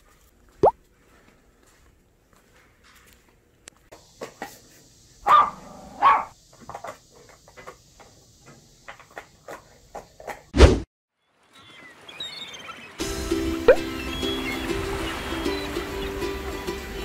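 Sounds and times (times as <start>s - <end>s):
dog barking: 5.2s - 6.4s.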